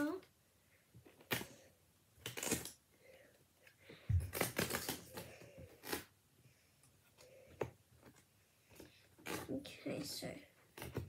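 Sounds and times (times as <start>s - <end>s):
cardboard cards rustling and clicking: 2.2s - 2.8s, 4.0s - 6.2s, 10.6s - 11.0s.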